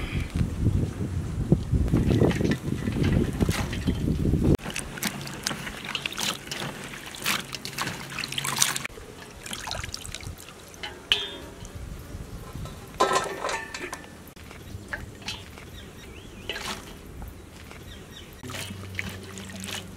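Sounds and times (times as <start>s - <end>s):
water splashing and trickling: 1.8s - 19.9s
hands swishing vegetables in water: 1.9s - 10.8s, 14.4s - 19.9s.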